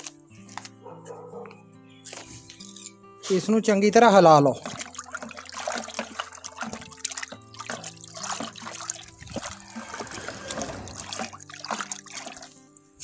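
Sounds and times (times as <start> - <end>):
background music: 0.0 - 13.0
water swishing in a bucket: 4.2 - 12.8.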